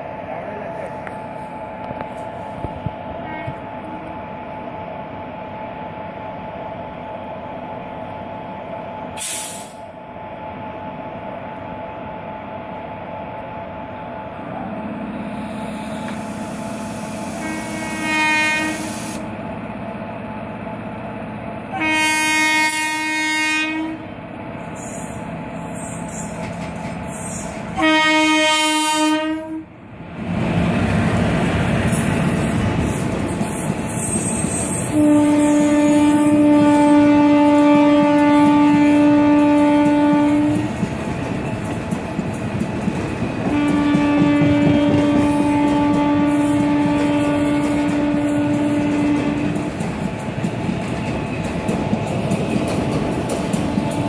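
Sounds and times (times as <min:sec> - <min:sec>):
locomotive horn blasts: 0:17.4 - 0:18.9, 0:21.7 - 0:24.0, 0:27.8 - 0:29.7, 0:34.9 - 0:40.6, 0:43.5 - 0:49.4
train wheels clickety-clack: 0:24.6 - 0:27.8, 0:30.8 - 0:54.0.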